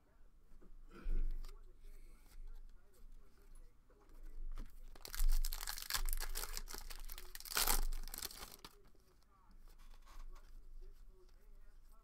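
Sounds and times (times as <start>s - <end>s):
foil wrapper tearing and crinkling: 4.9s - 8.8s.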